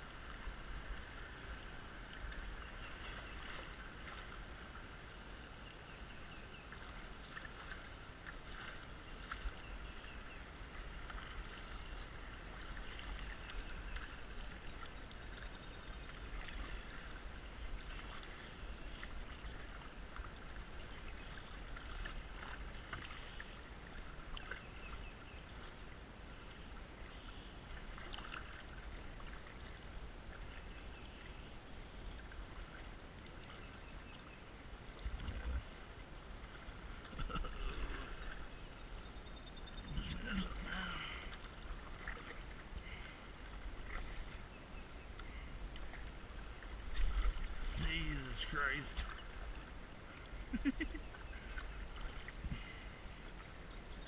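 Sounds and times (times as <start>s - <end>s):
paddle splashes: 0.0s - 39.0s, 39.6s - 54.0s
water gurgling against kayak hull: 36.9s - 38.4s, 39.6s - 44.4s.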